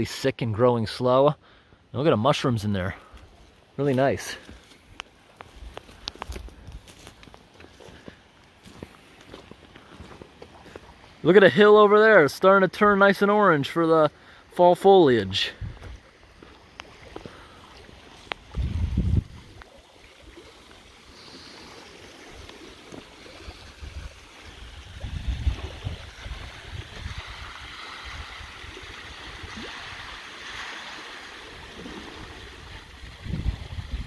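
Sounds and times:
waves lapping against concrete: 3.0s - 11.4s, 15.3s - 34.0s
wind buffeting microphone: 15.6s - 16.0s, 18.4s - 19.7s, 23.6s - 28.8s, 32.2s - 34.0s.

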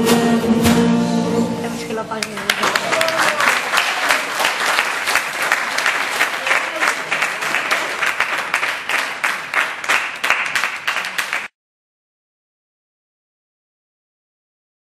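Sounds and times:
crowd applauding: 2.2s - 11.5s.

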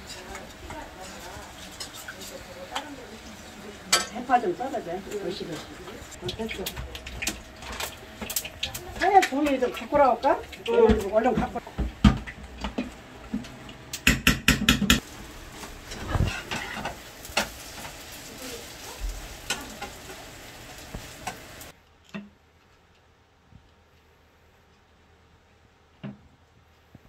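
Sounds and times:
pancake sizzling in a pan: 0.0s - 12.8s, 14.9s - 21.8s
metal utensils clattering: 15.8s - 20.2s.

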